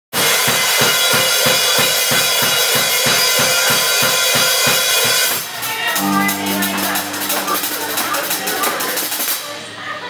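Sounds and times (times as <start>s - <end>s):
live rock band playing: 6.0s - 9.0s
guitars ringing: 6.0s - 9.4s
cymbals: 6.0s - 9.5s.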